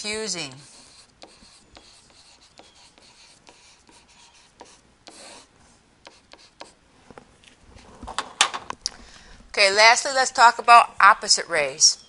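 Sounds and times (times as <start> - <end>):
stylus scratching on tablet: 0.0 - 6.8.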